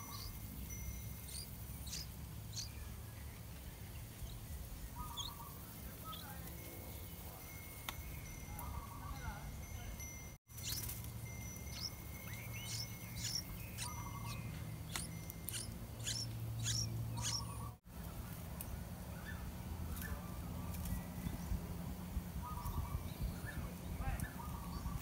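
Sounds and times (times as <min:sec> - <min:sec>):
bird chick chirping: 0:00.0 - 0:03.0, 0:03.8 - 0:06.5, 0:10.5 - 0:11.0, 0:11.6 - 0:17.8, 0:22.4 - 0:25.0.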